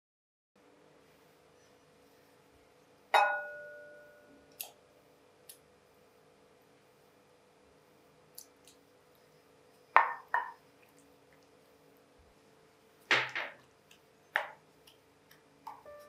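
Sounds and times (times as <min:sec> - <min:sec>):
wooden spoon knocking glass bowl: 0:03.2 - 0:03.8, 0:10.0 - 0:10.6.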